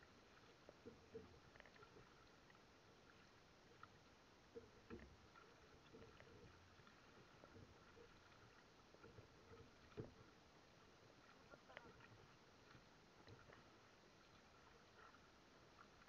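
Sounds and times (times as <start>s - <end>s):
paddle dipping into water: 0.0s - 16.0s
light knocks and splashes: 0.2s - 16.0s.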